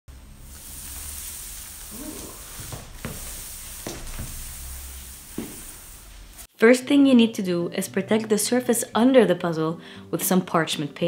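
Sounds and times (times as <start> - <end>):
steady hiss: 0.1 - 6.5
soft knocks and scuffs: 1.9 - 6.3.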